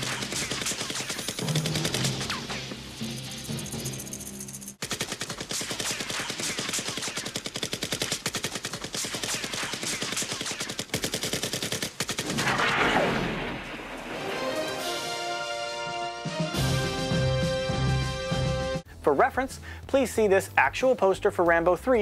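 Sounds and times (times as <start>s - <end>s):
rapid automatic gunfire: 0.0s - 2.7s, 4.8s - 12.8s.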